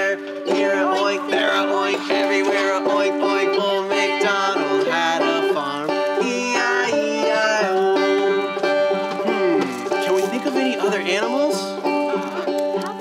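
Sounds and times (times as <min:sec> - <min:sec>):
people singing: 0:00.0 - 0:09.8
banjo strumming: 0:00.0 - 0:13.0.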